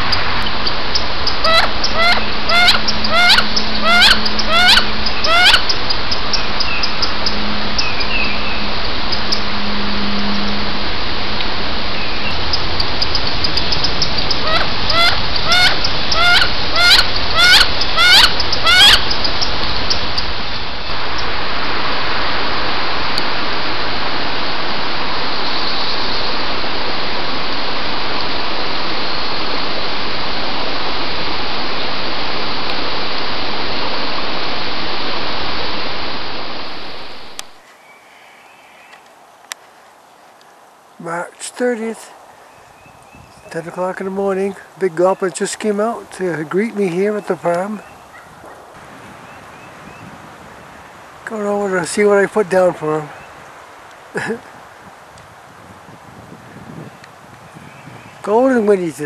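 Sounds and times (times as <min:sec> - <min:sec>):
steady rushing noise: 0:00.0 - 0:37.7, 0:39.0 - 0:59.0
duck squealing calls: 0:00.9 - 0:08.4, 0:12.5 - 0:20.0.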